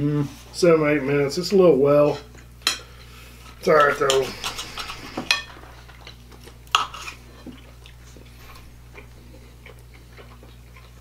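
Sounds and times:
cutlery scraping on plates: 3.7s - 5.8s, 6.7s - 7.5s.

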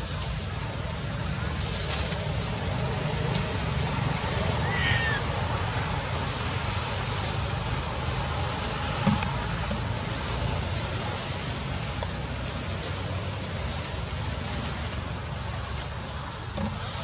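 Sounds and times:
short high animal call: 4.6s - 5.2s.

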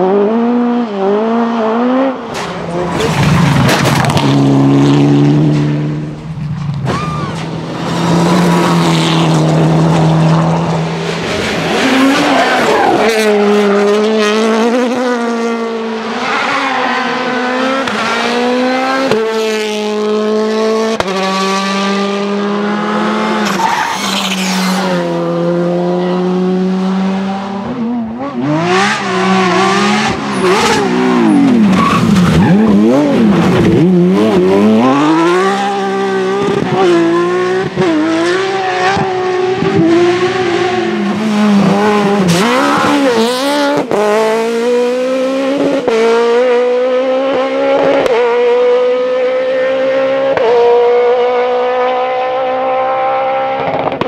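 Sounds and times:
rally car engines at full throttle: 0.0s - 54.0s
sports car engine revving hard: 25.1s - 54.0s.

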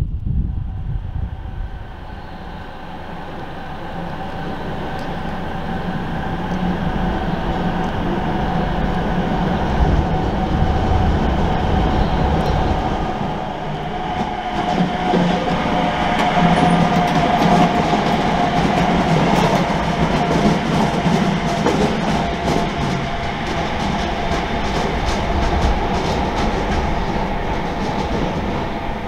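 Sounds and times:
electric locomotive whine: 0.0s - 29.0s
train wheels rumbling: 0.0s - 29.0s
wheels clicking over rail joints: 13.8s - 29.0s.

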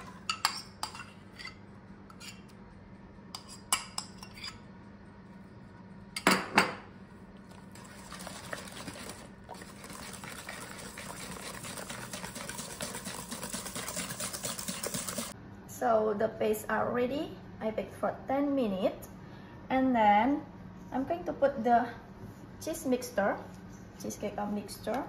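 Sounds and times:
whisk beating in steel bowl: 7.5s - 15.4s.

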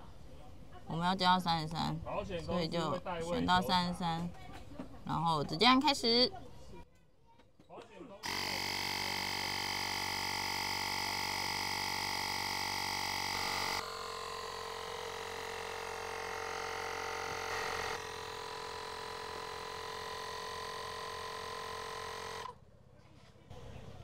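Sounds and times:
electric air pump buzzing: 8.2s - 22.6s.

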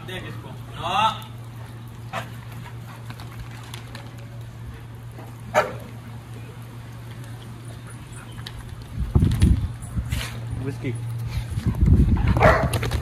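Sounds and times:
steady low hum: 0.0s - 13.0s
dog barking: 5.5s - 5.8s, 12.4s - 12.7s.

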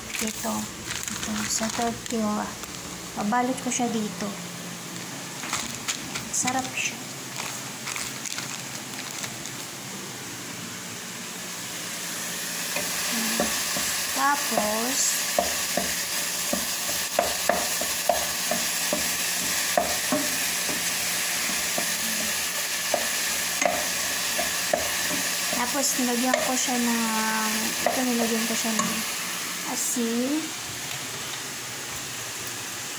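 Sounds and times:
meat sizzling in a pan: 11.3s - 32.9s
spatula knocking and scraping pan: 12.7s - 26.9s, 27.5s - 29.0s.

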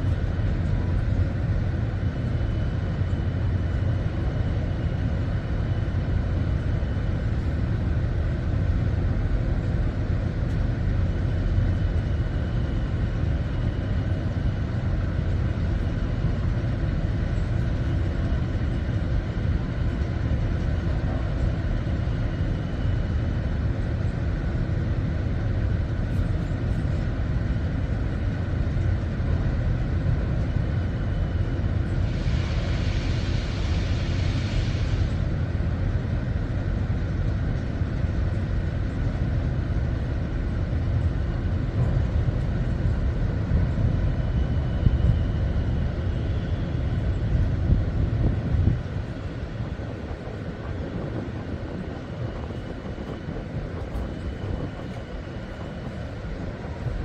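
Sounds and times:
ship machinery low rumble: 0.0s - 57.0s
hiss: 32.0s - 35.3s.

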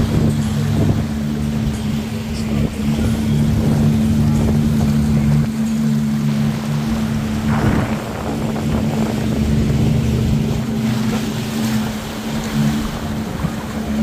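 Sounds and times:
jet ski engine running: 0.0s - 14.0s
rushing water and wind: 0.0s - 14.0s
water spray surge: 7.3s - 8.8s.

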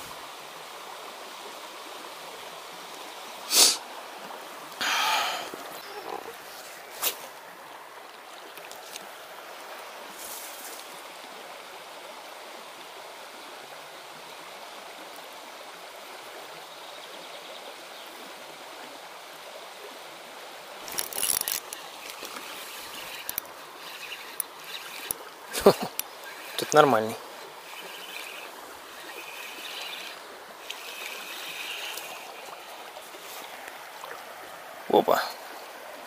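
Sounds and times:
river current rushing: 0.0s - 11.8s, 19.8s - 36.0s.

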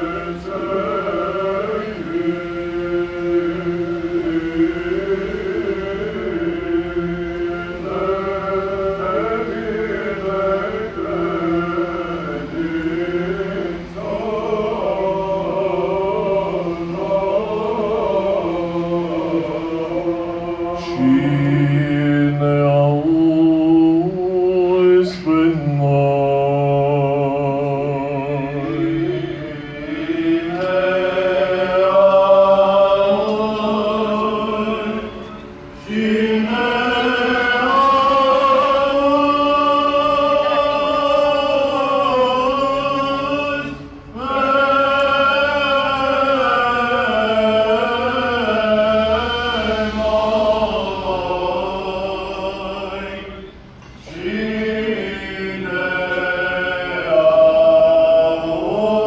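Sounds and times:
liturgical chant singing: 0.0s - 59.0s.

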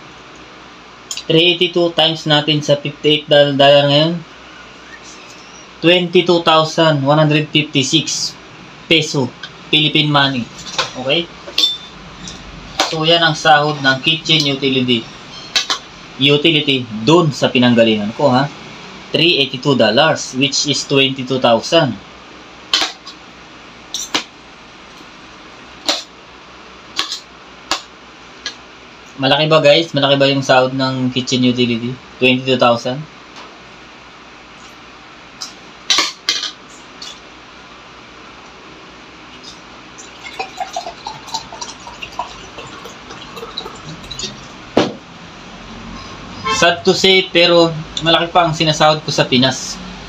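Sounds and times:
low steady hum: 0.0s - 50.0s
liquid glugging into a glass: 40.0s - 44.6s
bottle knocking on a table: 44.8s - 45.0s.

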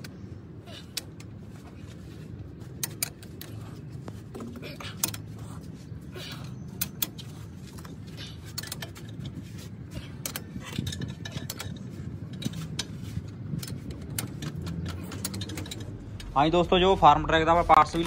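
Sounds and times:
steady low hum: 0.0s - 18.0s
metallic clicks of hand tools: 13.6s - 16.3s.

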